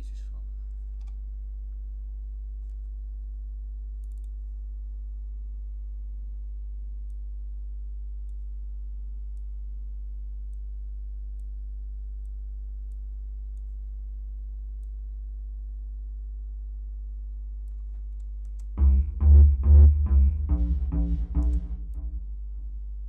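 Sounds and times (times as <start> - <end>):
low electrical hum: 0.0 - 23.0
computer mouse clicks: 4.0 - 4.4.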